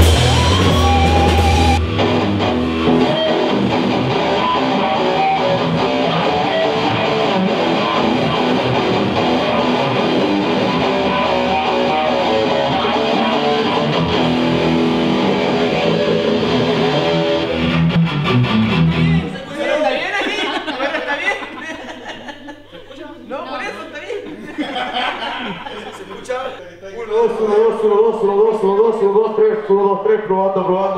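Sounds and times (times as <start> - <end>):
loud rock band guitars: 0.0 - 19.3.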